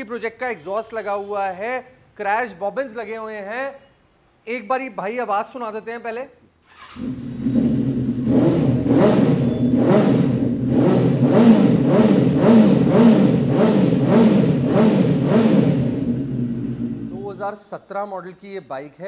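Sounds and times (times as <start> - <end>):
motorcycle engine revving: 6.6 - 17.2.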